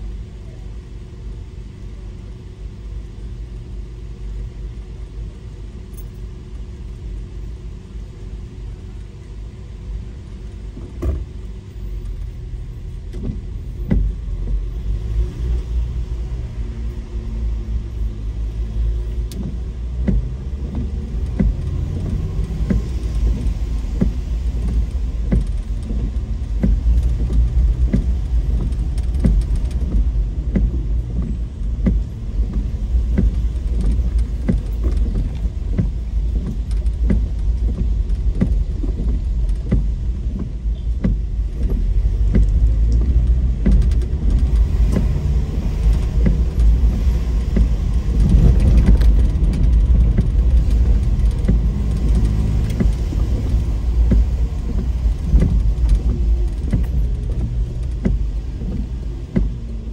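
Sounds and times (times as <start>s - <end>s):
low road rumble: 0.0s - 59.9s
light clicks and knocks: 19.2s - 59.8s.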